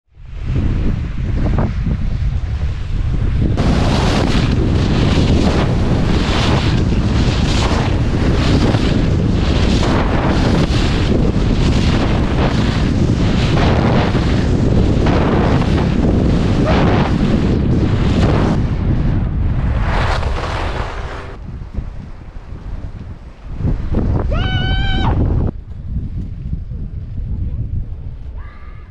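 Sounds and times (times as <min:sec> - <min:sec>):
wind buffeting microphone: 0:00.1 - 0:28.9
skis sliding over packed snow: 0:03.6 - 0:18.6, 0:19.6 - 0:21.4.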